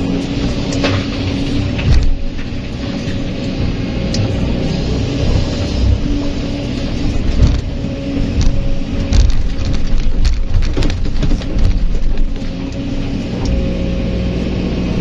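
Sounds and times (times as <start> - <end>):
excavator diesel engine under load: 0.0 - 15.0
bucket knocking on rocks: 8.3 - 12.4.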